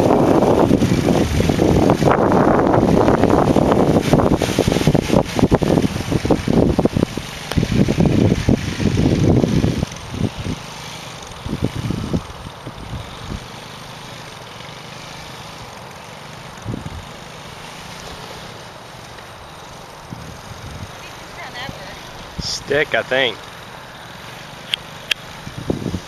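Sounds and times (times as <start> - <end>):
wind buffeting microphone: 0.0 - 13.6, 16.6 - 18.3, 20.0 - 23.0, 24.8 - 26.0
distant atv engine drone: 0.0 - 26.0.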